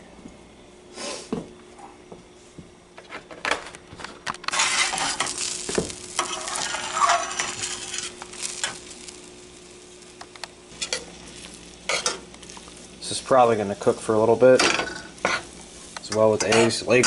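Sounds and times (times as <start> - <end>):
eggs sizzling: 4.2 - 17.0
metal spatula scraping a skillet: 4.5 - 5.6, 6.2 - 8.8, 14.6 - 17.0.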